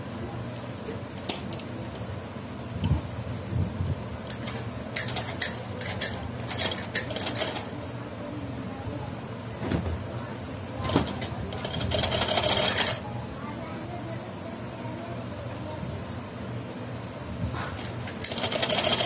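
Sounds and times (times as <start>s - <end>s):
sewing machine clicks: 18.0s - 19.0s.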